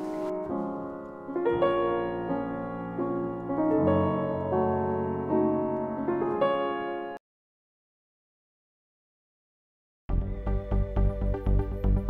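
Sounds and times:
piano playing slow chords: 0.0 - 7.2.

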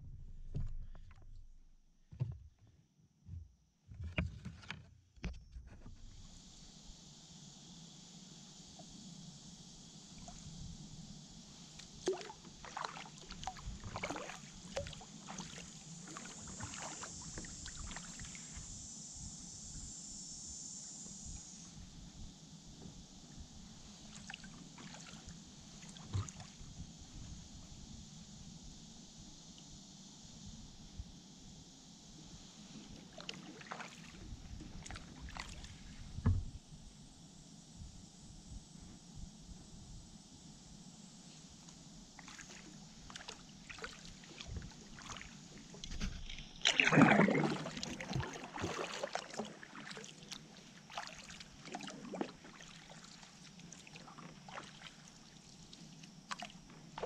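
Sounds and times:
steady high hiss: 6.1 - 46.6
paddle water splashes: 11.6 - 18.7, 24.0 - 26.6, 32.8 - 36.4, 42.2 - 57.0.

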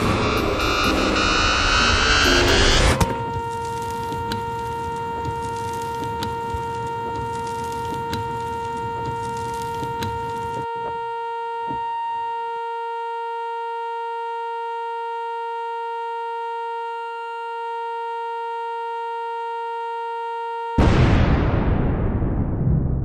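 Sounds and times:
sudden loud noise burst: 0.0 - 4.0, 20.8 - 23.0
buzzy electronic tone: 0.0 - 12.6.

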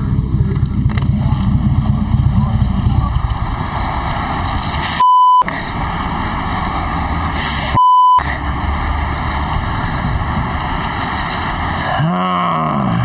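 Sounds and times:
wind rumble: 0.0 - 12.1
highway traffic: 0.0 - 13.0
censor bleep tone: 5.0 - 5.5, 7.8 - 8.2.

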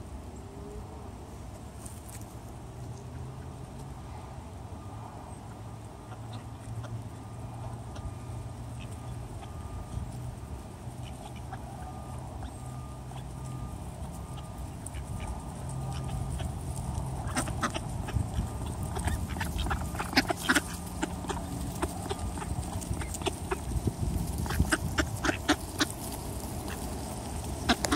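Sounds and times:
ducks quacking: 6.0 - 27.9.

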